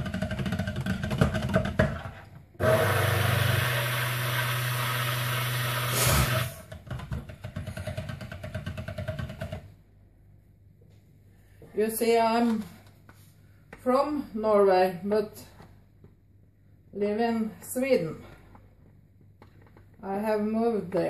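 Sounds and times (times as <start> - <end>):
blender rattling: 0.0 - 9.6
stick blender running: 2.6 - 6.8.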